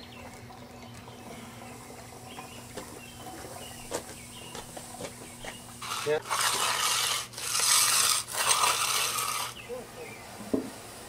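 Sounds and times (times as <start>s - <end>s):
tool scraping over concrete: 4.6s - 9.7s.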